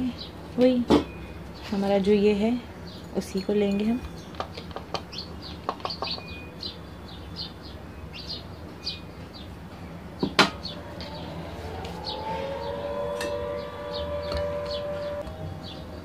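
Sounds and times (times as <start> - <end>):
distant siren-like wail: 10.0 - 16.0.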